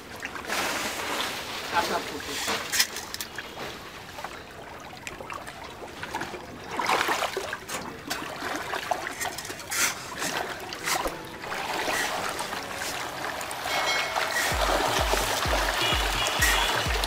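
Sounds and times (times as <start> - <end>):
pellets pattering onto water: 0.0 - 4.4, 6.8 - 17.0
water splashing: 0.0 - 17.0.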